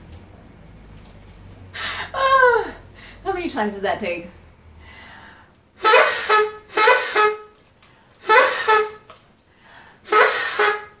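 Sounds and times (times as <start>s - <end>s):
party horn toots: 5.8s - 9.2s, 10.0s - 11.0s.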